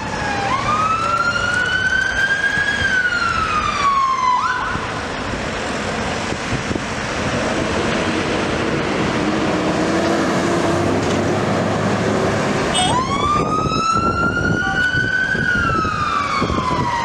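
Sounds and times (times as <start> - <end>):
fire engine wail siren: 0.0 - 17.0
road noise: 0.0 - 17.0
truck engine: 0.0 - 17.0.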